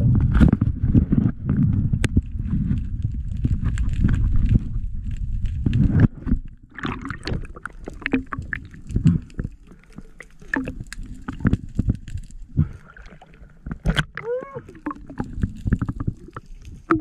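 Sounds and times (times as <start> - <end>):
clicks and knocks underwater: 0.0 - 17.0
low underwater rumble: 0.0 - 17.0
underwater rush of water: 6.7 - 17.0.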